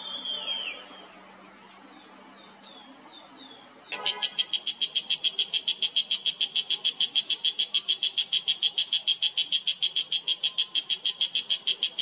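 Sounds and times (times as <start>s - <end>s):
cicada calling: 0.0s - 1.1s, 3.9s - 12.0s.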